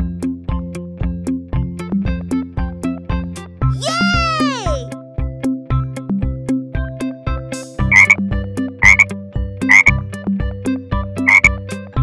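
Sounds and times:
frog croaks: 7.9 - 8.2, 8.8 - 9.1, 9.7 - 10.0, 11.2 - 11.6.

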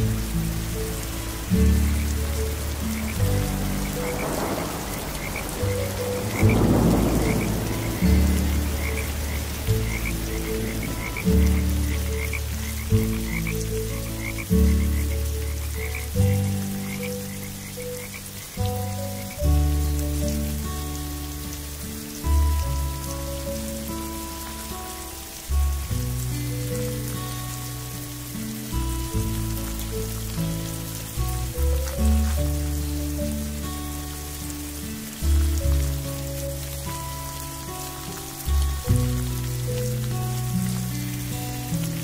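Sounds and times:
frogs croaking: 0.0 - 42.0
rain hiss: 0.0 - 42.0.

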